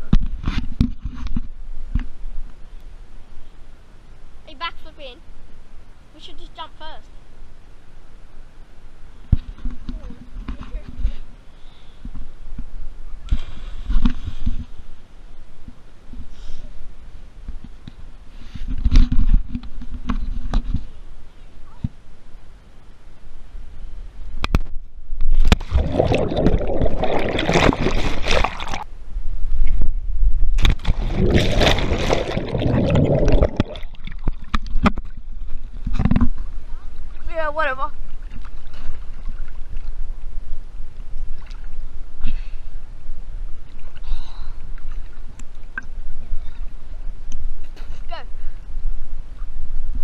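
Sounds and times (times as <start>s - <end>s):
underwater bubbling and rushing: 25.3s - 28.9s, 30.4s - 37.3s, 38.0s - 42.2s
person splashing into water: 25.5s - 28.9s, 30.6s - 34.9s.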